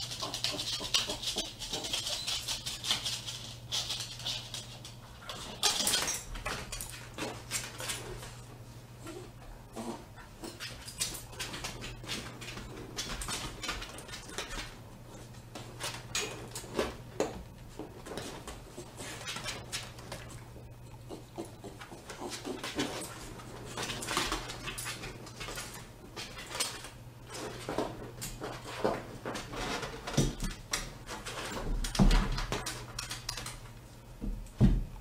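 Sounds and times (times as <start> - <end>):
dog making vocal noises: 0.0 - 2.6.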